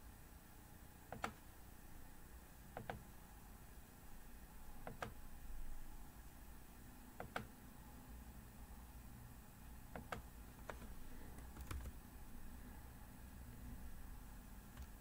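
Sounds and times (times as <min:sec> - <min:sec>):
faint room hum: 0:00.0 - 0:15.0
computer mouse clicks: 0:01.1 - 0:01.4, 0:02.8 - 0:03.0, 0:04.8 - 0:05.2, 0:07.2 - 0:07.5, 0:09.9 - 0:12.0, 0:14.7 - 0:15.0.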